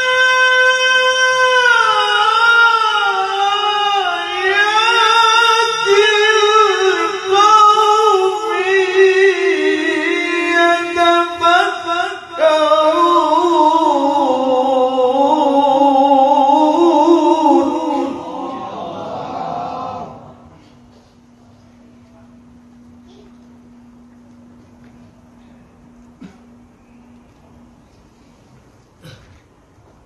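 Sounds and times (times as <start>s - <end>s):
man reciting melodically: 0.0s - 20.4s.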